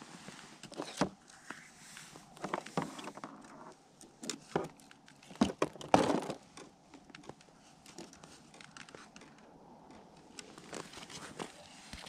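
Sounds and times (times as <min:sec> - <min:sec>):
crunching crackling knocks on ice: 0:04.1 - 0:10.1.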